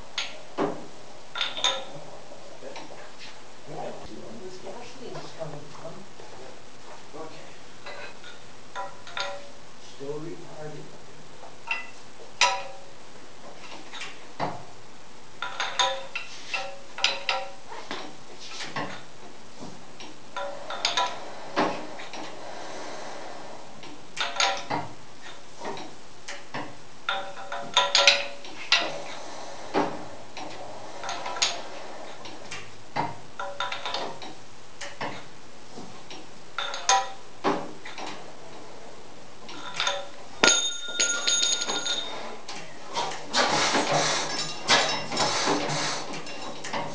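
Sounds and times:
ringing metal clang: 39.6 - 42.2
sharp metal clinks: 40.4 - 42.2.

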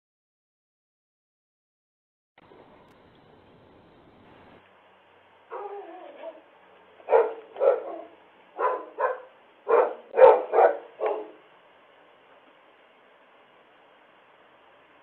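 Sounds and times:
dog whining: 5.5 - 6.5, 7.1 - 11.4
dog barking: 5.5 - 11.4.

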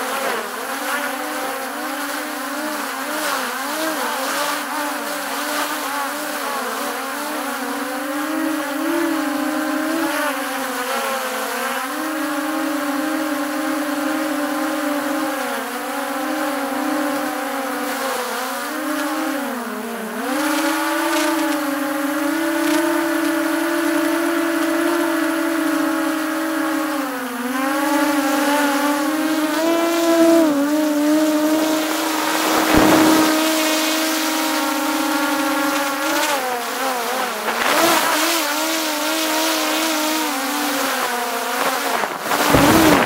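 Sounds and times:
drone propellers buzzing: 0.0 - 43.0
brief rushing noise: 32.6 - 33.4.

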